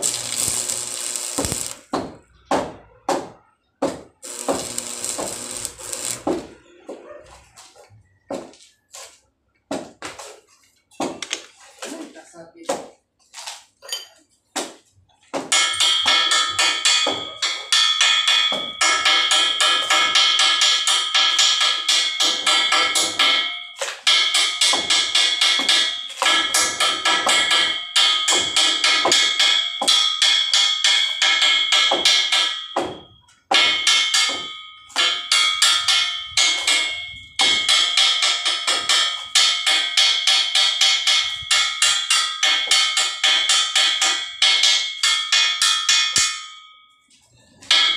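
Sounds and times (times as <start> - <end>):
metal pipe ringing: 0.0 - 2.5, 4.2 - 6.6, 15.5 - 47.9
hammer striking metal pipe: 0.0 - 6.6, 15.4 - 46.8, 47.6 - 47.9.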